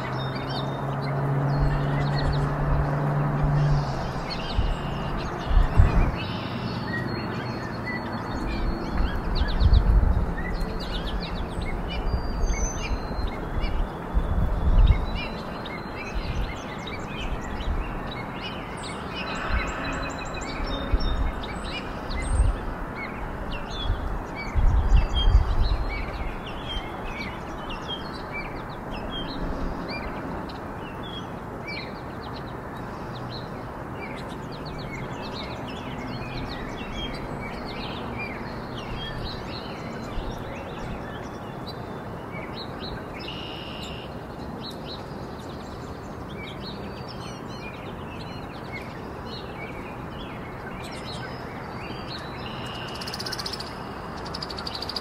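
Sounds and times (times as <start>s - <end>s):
songbirds chirping: 0.0s - 55.0s
steady rushing noise: 0.9s - 6.3s, 8.1s - 32.2s.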